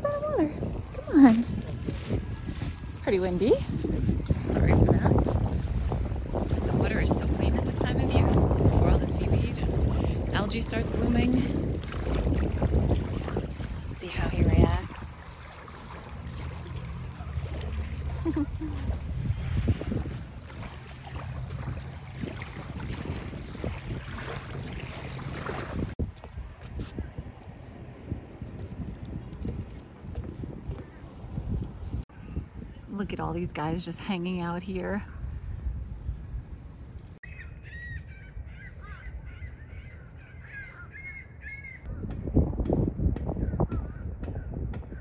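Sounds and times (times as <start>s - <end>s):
gusty wind on microphone: 0.0s - 45.0s
small waves washing on sand: 1.2s - 26.0s
gulls calling: 37.2s - 42.0s.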